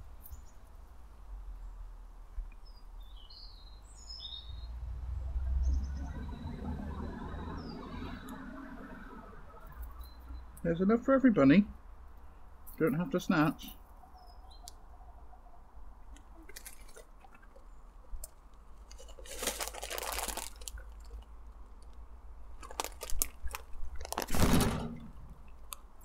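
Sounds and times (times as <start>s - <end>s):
leaves rustling: 16.0s - 26.0s
rabbits chewing dried leaves: 16.1s - 25.8s.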